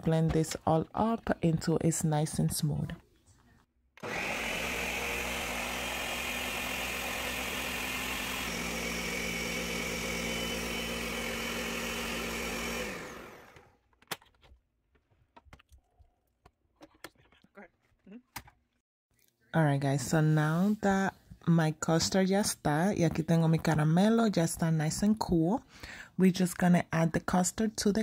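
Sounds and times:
blender motor running: 0:04.0 - 0:13.7.

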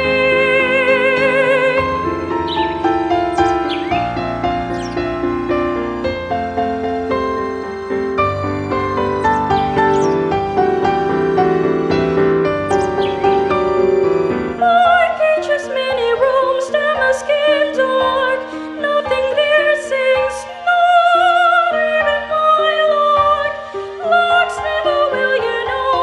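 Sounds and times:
soprano singing a ballad: 0:00.0 - 0:05.0, 0:14.2 - 0:26.0
sustained instrumental chords: 0:00.4 - 0:14.7.

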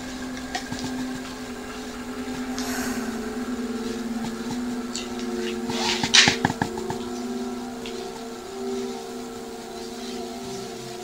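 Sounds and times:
low hum of held tones: 0:00.0 - 0:11.0
brief hiss: 0:02.5 - 0:03.5.

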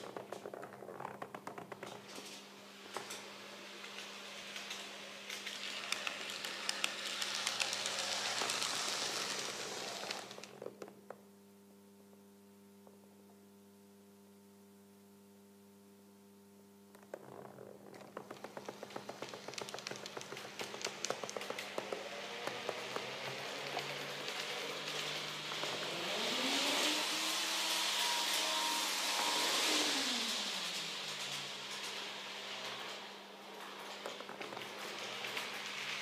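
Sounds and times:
model train wheels clicking: 0:02.0 - 0:10.6, 0:18.3 - 0:36.0.

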